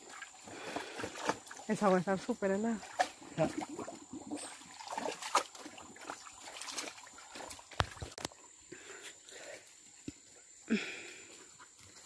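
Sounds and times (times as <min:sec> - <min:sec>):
water sloshing and splashing: 0:00.0 - 0:08.6.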